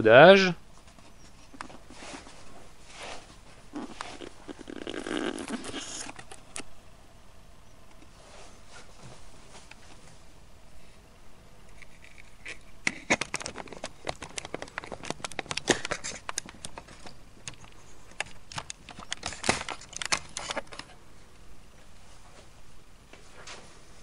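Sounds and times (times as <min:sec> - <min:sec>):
light clicks and crinkly rustles: 0:11.7 - 0:21.0.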